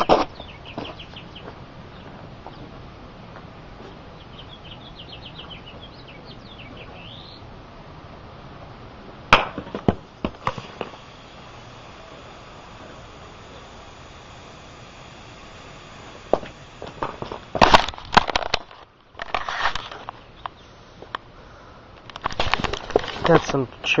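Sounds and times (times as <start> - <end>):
small bird chirping: 0.3 - 2.7, 4.1 - 7.5.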